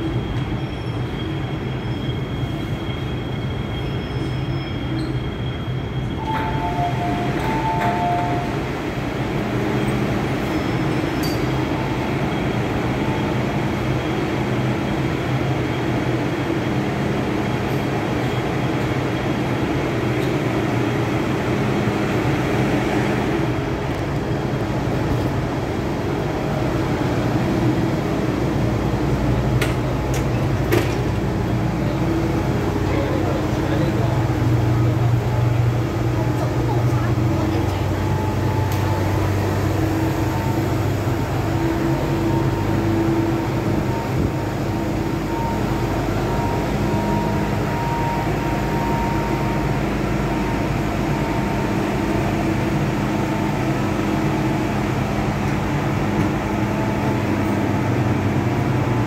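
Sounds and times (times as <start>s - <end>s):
electric train hum and rail noise: 0.0s - 59.0s
two-tone door chime: 6.2s - 8.6s.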